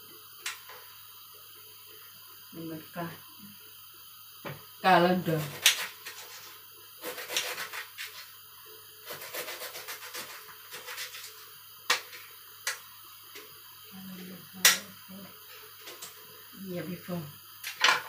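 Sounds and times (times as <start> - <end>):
knife scraping on cutting board: 5.5 - 8.2, 9.1 - 11.3.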